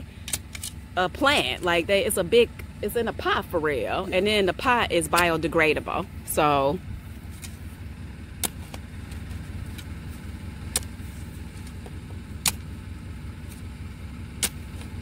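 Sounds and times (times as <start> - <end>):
steady low rumble: 0.0 - 15.0
shovel striking dirt: 0.2 - 1.7, 7.2 - 12.8, 14.3 - 15.0.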